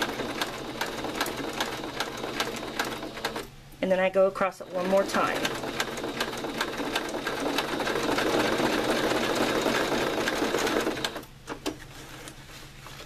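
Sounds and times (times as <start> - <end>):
sewing machine running: 0.0 - 3.5, 4.4 - 11.3.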